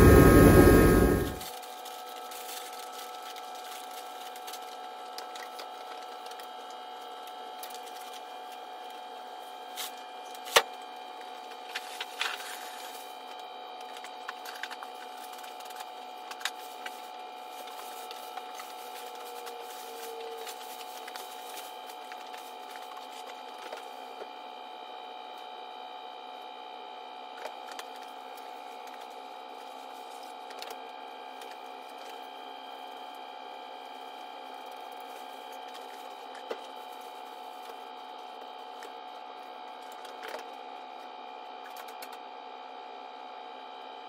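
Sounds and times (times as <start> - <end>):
machine hum: 0.0 - 1.5.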